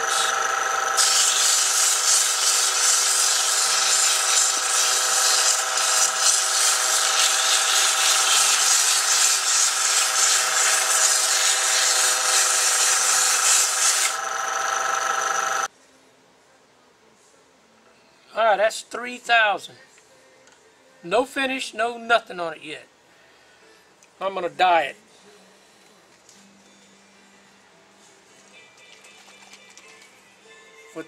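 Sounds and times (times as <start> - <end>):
wood lathe whine: 0.0 - 15.7
sandpaper sanding hiss: 1.0 - 14.2.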